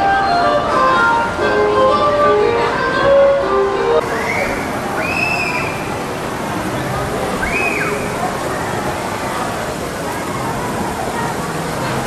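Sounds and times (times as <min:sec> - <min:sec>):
background music melody: 0:00.0 - 0:04.0
background hubbub: 0:00.0 - 0:12.0.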